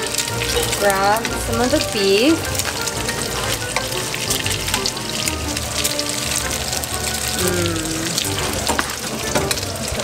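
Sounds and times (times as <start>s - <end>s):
background music: 0.0s - 10.0s
meat sizzling in frying pans: 0.0s - 10.0s.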